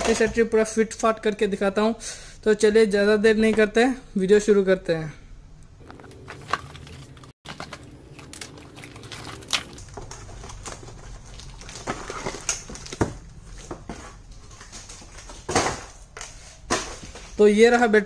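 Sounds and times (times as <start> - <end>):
cardboard rustling and scraping: 9.9 - 17.4.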